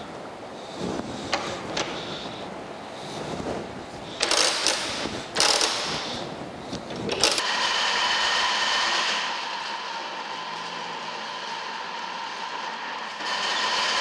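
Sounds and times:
metallic rasping of hand crank: 0:04.2 - 0:06.0
metal planer mechanical whine: 0:07.2 - 0:14.0.

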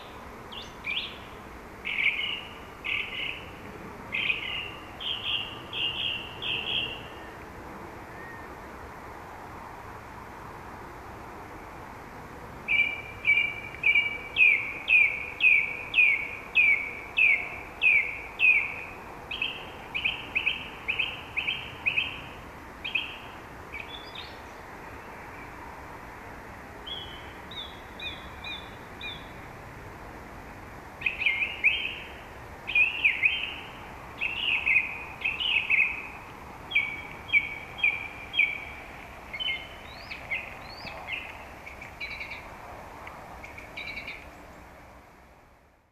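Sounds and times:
song thrush singing: 0:00.0 - 0:07.5, 0:12.6 - 0:25.6, 0:26.8 - 0:29.4, 0:31.0 - 0:42.6, 0:43.3 - 0:44.7.

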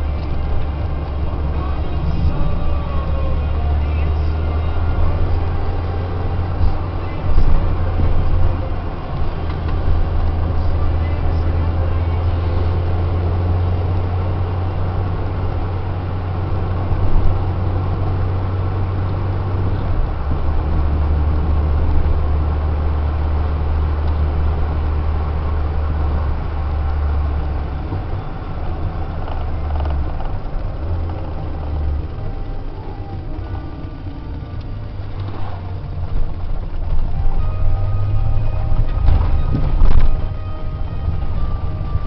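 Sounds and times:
car engine droning: 0:00.0 - 0:42.0
tyre and road noise: 0:00.0 - 0:42.0.

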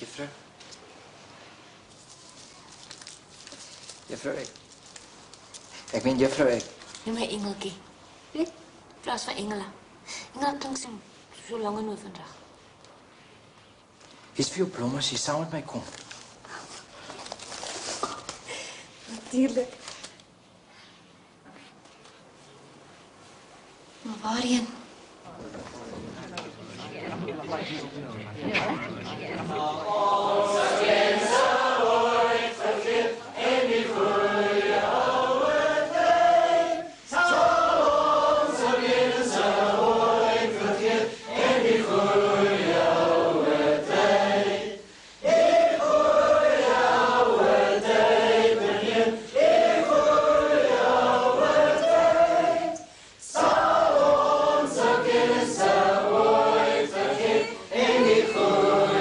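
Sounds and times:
choir singing: 0:29.0 - 0:59.0.

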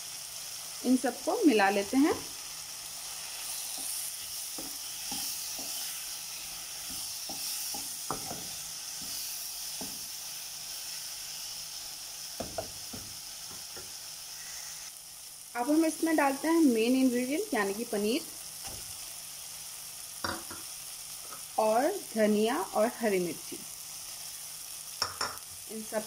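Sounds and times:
vegetables sizzling in oil: 0:00.0 - 0:26.0
spatula scraping pan: 0:03.1 - 0:10.0
spatula knocking on pan: 0:06.9 - 0:08.5, 0:12.4 - 0:13.2.

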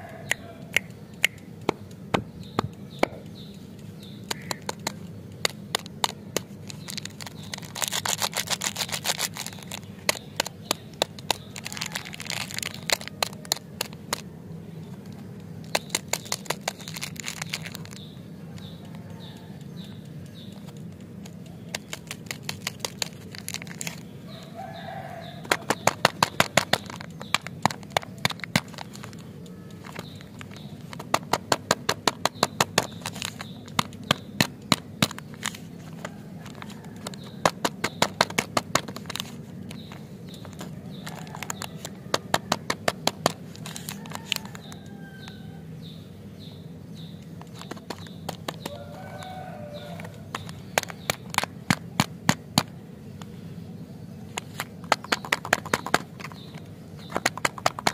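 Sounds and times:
steady low hum: 0:00.0 - 0:57.9
plastic wrappers crinkling: 0:04.3 - 0:14.3, 0:15.6 - 0:19.1, 0:20.6 - 0:45.0.

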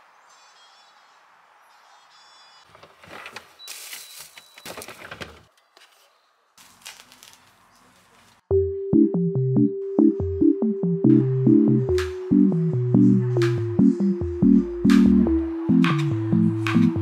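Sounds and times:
plastic containers clattering: 0:02.7 - 0:05.5
plastic wrapping crinkling: 0:06.6 - 0:08.3.

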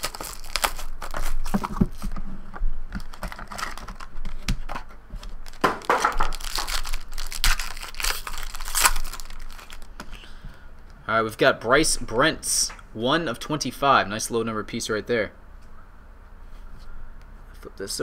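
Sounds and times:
wrappers crinkling and tearing: 0:00.0 - 0:02.1, 0:03.0 - 0:04.4, 0:05.2 - 0:10.0.

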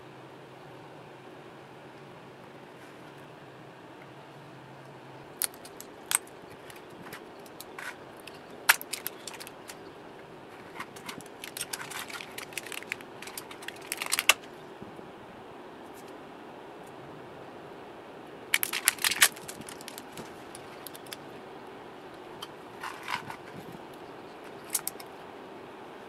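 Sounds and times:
pliers clicking and snapping metal: 0:05.4 - 0:09.8, 0:10.7 - 0:14.5, 0:18.6 - 0:21.2, 0:24.6 - 0:25.1.

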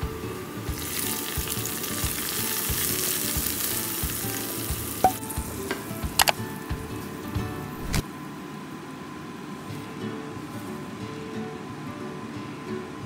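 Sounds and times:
hot oil sizzling in curry: 0:00.6 - 0:06.4.

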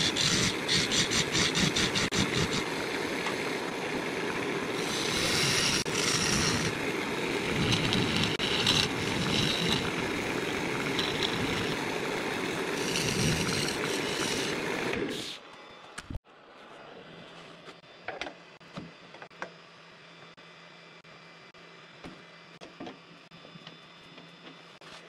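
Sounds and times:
turning tool scraping wood: 0:00.0 - 0:02.7, 0:04.8 - 0:06.8, 0:07.4 - 0:11.9, 0:12.5 - 0:15.4
wood lathe humming: 0:00.0 - 0:15.4.

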